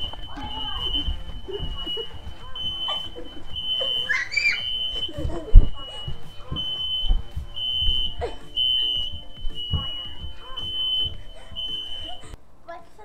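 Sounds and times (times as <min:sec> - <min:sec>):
smoke alarm beeping: 0:00.0 - 0:12.4
heavy thump: 0:04.9 - 0:11.8.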